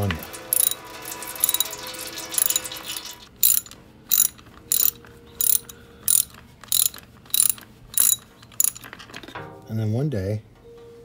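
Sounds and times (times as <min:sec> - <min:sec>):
socket ratchet clicking: 0:00.6 - 0:00.8, 0:01.4 - 0:01.7, 0:03.4 - 0:09.0.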